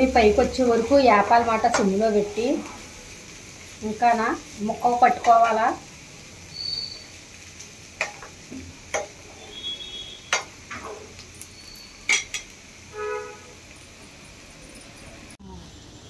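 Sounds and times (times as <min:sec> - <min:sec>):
metal spatula scraping a pan: 0:08.0 - 0:13.5.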